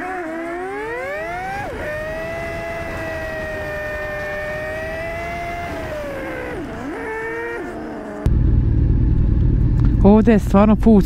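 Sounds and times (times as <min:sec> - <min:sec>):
motorcycle engine whining under load: 0:00.0 - 0:11.0
loud low rumble: 0:08.3 - 0:11.0.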